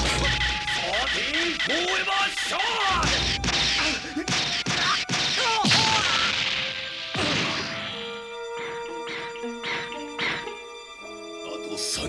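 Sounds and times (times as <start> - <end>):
music: 0.0 - 12.0
cartoon hits and smashes: 2.9 - 8.1.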